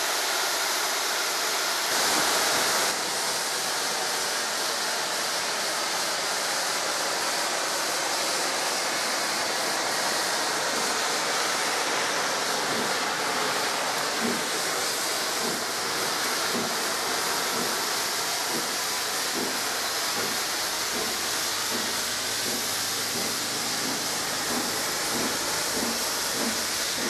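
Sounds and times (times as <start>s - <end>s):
steam hissing from locomotive: 0.0s - 27.0s.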